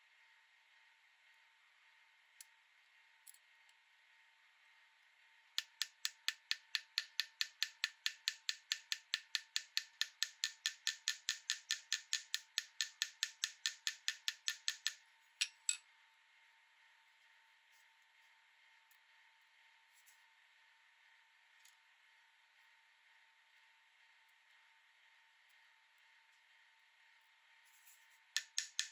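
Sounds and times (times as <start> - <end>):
small hammer tapping on metal: 5.6 - 15.8, 28.4 - 28.9.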